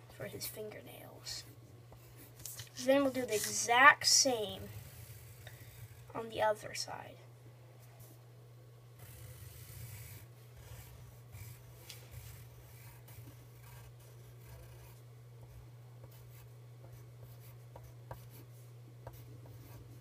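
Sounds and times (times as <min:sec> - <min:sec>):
pencil scratching on paper: 0:01.3 - 0:06.2, 0:09.0 - 0:20.0.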